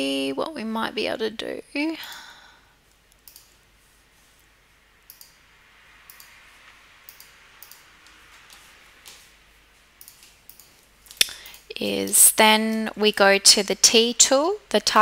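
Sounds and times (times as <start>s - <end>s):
low steady hiss: 0.0s - 15.0s
computer mouse clicking: 2.9s - 3.6s, 5.1s - 5.4s, 6.1s - 6.4s, 7.1s - 9.3s, 10.0s - 12.2s.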